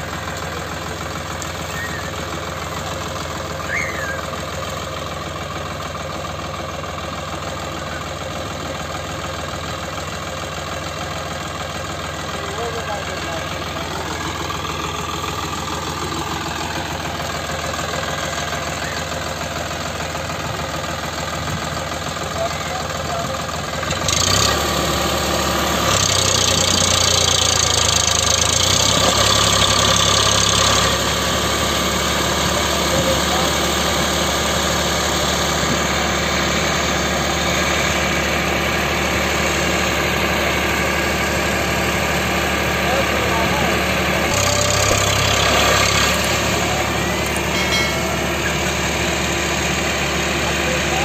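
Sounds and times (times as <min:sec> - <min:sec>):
wheel churning in mud: 0:00.0 - 0:05.4, 0:19.6 - 0:51.0
tractor diesel engine under load: 0:00.0 - 0:51.0.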